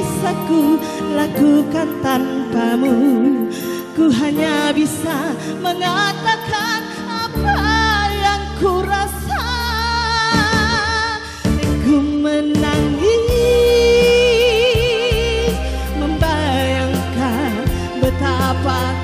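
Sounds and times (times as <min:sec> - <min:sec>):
keyboard and bass chords: 0:00.0 - 0:19.0.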